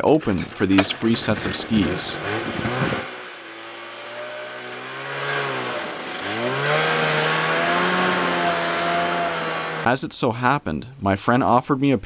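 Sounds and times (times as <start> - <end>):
snowmobile engine revving: 0.4 - 9.9.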